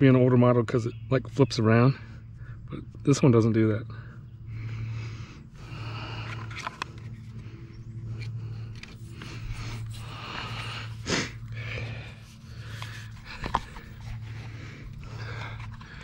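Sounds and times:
low steady hum: 0:00.0 - 0:16.0
person breathing heavily: 0:03.9 - 0:16.0.

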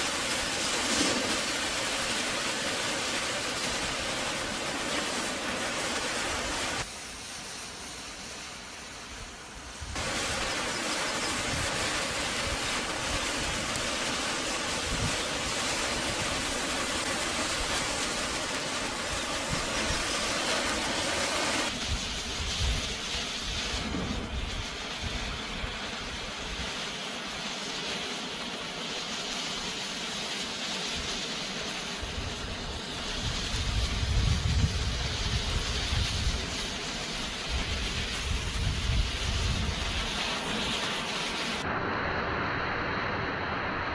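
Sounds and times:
flames hissing: 0:00.0 - 0:43.9
deep fire rumble: 0:09.9 - 0:26.8, 0:32.0 - 0:40.7.

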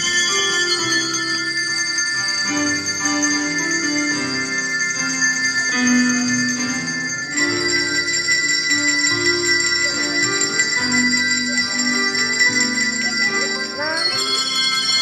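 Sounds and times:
handbells ringing: 0:00.0 - 0:15.0.

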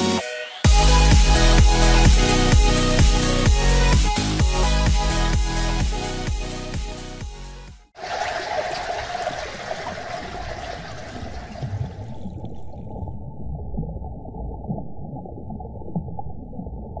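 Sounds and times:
underwater bubbling rumble: 0:08.0 - 0:17.0.

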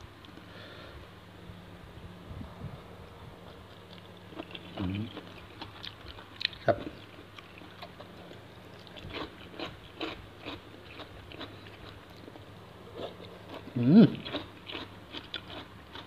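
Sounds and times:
person chewing crunchy shrimp: 0:03.5 - 0:16.0.

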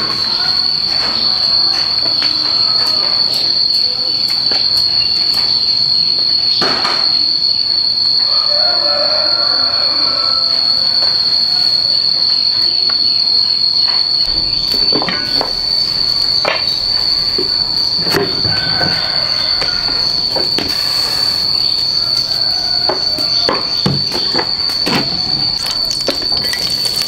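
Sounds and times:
high-pitched insect drone: 0:00.0 - 0:27.0.

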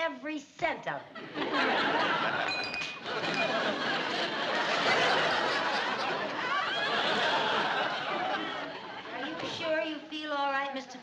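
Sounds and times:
studio audience laughing: 0:01.1 - 0:09.8.

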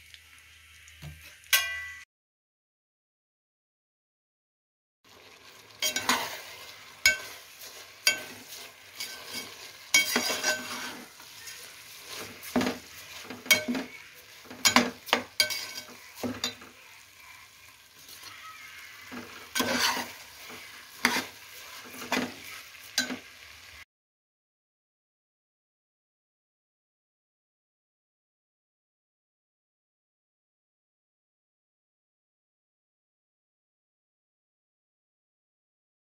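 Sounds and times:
faint sizzle: 0:00.0 - 0:02.0, 0:05.1 - 0:23.8
metal spoon scraping a pot: 0:05.6 - 0:16.8, 0:18.9 - 0:23.2.

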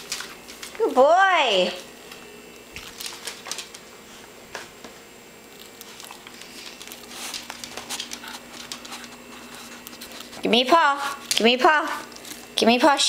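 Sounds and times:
faint steady hum: 0:00.0 - 0:13.0
dog claws clicking on wooden floor: 0:02.8 - 0:03.8, 0:05.6 - 0:10.3.

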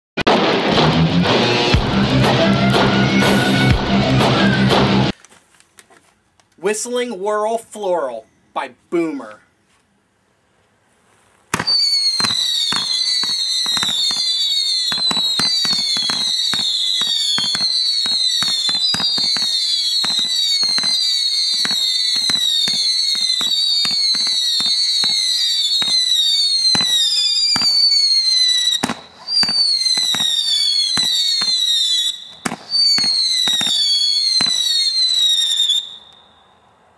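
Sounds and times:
firework whistling shrilly: 0:02.0 - 0:05.1, 0:11.5 - 0:36.7
firework cracks: 0:11.5 - 0:36.3.

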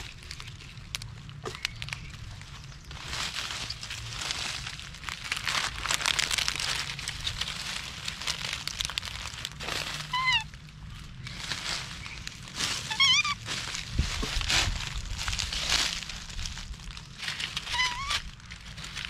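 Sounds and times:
dry leaves crackling and rustling: 0:00.0 - 0:19.0
monkey squeaking: 0:10.0 - 0:10.5, 0:12.8 - 0:13.5, 0:17.6 - 0:18.3.

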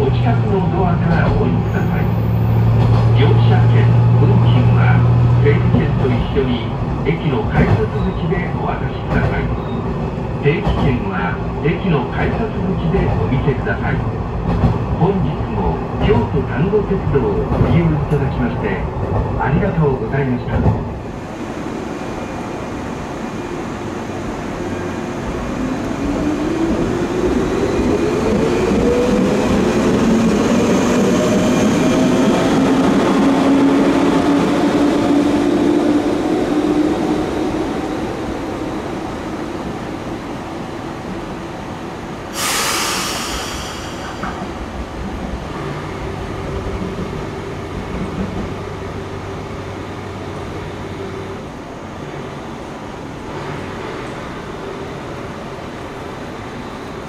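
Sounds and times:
diesel railcar engine drone: 0:20.8 - 0:57.0
compressed air hiss: 0:42.3 - 0:44.7.

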